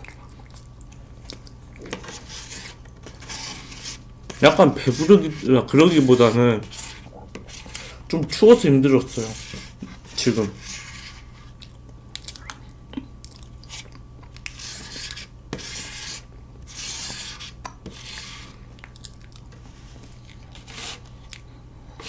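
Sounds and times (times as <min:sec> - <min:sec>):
chewing: 0:00.0 - 0:02.0, 0:11.6 - 0:14.6, 0:18.7 - 0:20.6, 0:21.2 - 0:21.5
fork scraping cake board: 0:01.9 - 0:11.5, 0:13.6 - 0:18.6, 0:20.5 - 0:21.1.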